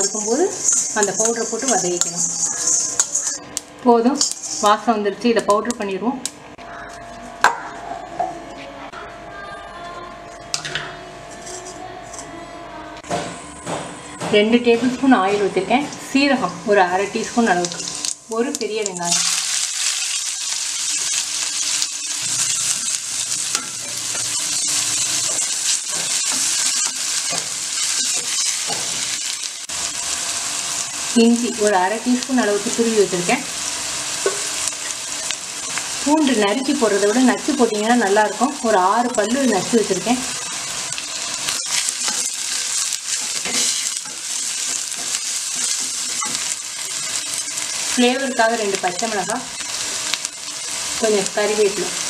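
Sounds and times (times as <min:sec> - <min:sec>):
spatula scraping and knocking pan: 0:00.0 - 0:03.4
onion sizzling in hot oil: 0:00.0 - 0:06.4, 0:15.0 - 0:52.0.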